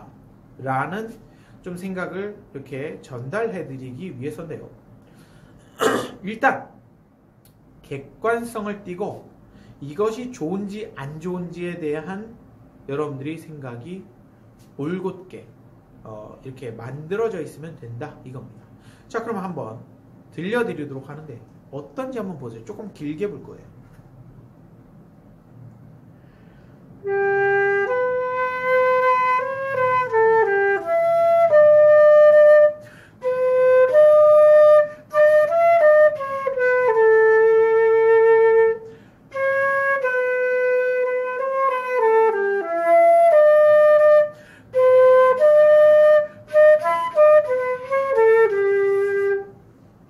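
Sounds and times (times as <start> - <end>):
breathy flute melody: 27.0 - 49.6.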